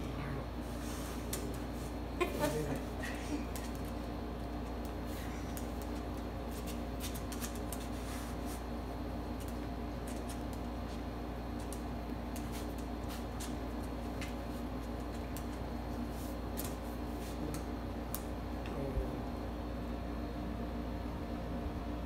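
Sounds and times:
steady low hum: 0:00.0 - 0:22.0
dog claws clicking on floor: 0:03.5 - 0:08.2, 0:09.3 - 0:15.7.

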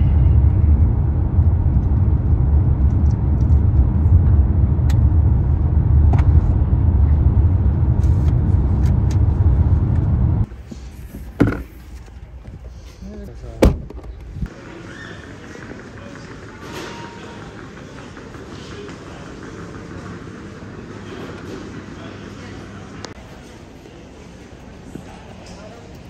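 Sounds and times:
car road rumble inside cabin: 0:00.0 - 0:10.5.

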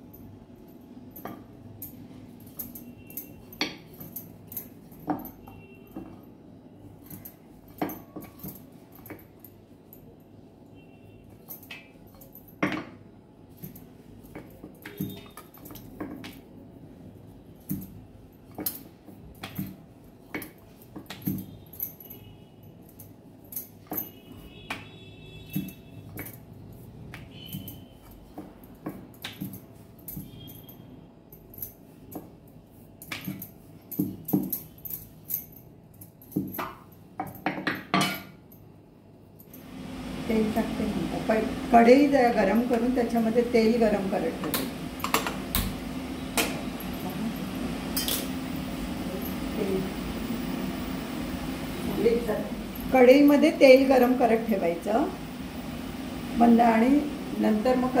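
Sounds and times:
utensils and dishes clicking: 0:44.4 - 0:45.8, 0:47.9 - 0:48.5.

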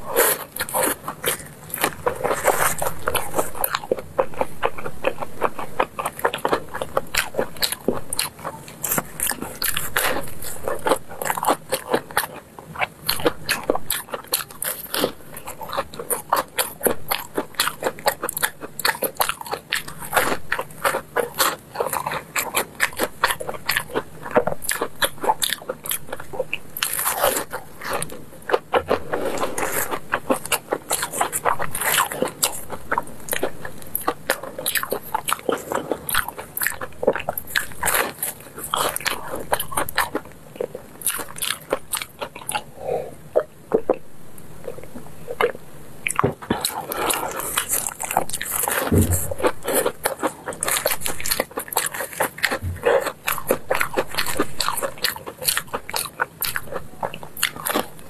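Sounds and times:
crunching and chewing crisp cakes: 0:00.0 - 0:58.0.

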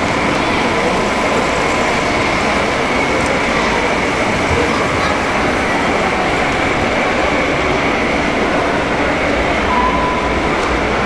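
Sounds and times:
crowd din in hall: 0:00.0 - 0:11.0
faint high whine: 0:09.6 - 0:11.0.

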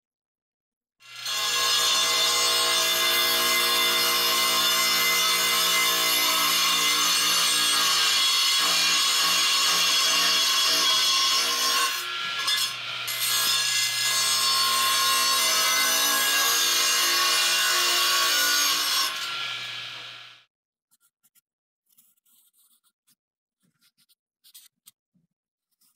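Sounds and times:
saw motor humming: 0:15.9 - 0:20.4.

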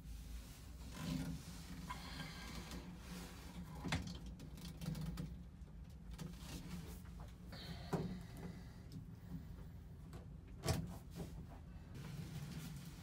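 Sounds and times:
hose rustling and scraping: 0:12.0 - 0:13.0.

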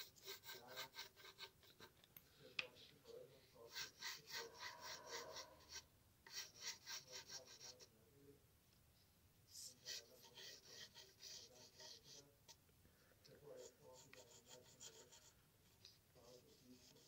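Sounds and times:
pencil scratching on paper: 0:00.0 - 0:02.0, 0:02.6 - 0:07.9, 0:09.6 - 0:12.4, 0:13.4 - 0:15.4, 0:16.2 - 0:17.0.

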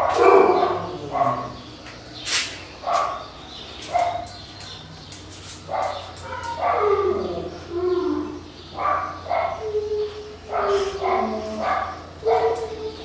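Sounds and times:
dog barking: 0:00.0 - 0:01.6, 0:02.8 - 0:03.2, 0:05.7 - 0:07.3, 0:08.8 - 0:09.7, 0:10.5 - 0:13.0.

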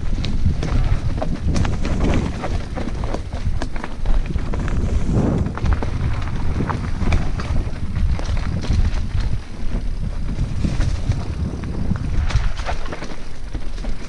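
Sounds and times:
bike knocks and rattles: 0:00.0 - 0:14.0
tyres rolling over dirt and stones: 0:00.0 - 0:14.0
wind rumble on microphone: 0:00.0 - 0:14.0.

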